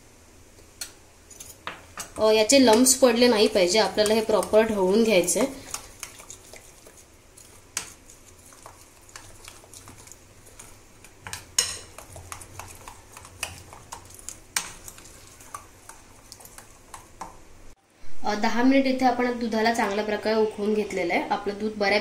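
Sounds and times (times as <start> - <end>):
utensil stirring in a bowl: 0.8 - 17.6.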